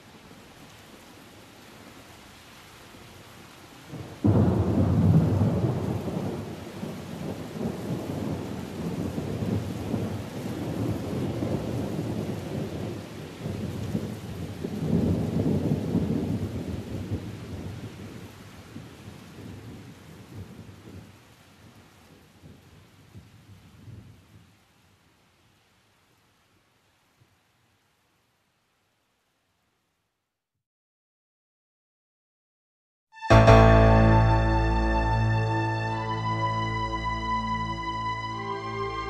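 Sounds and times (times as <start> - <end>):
steady rain: 0.0 - 30.4, 33.3 - 39.0
thunder rolling: 4.2 - 16.6.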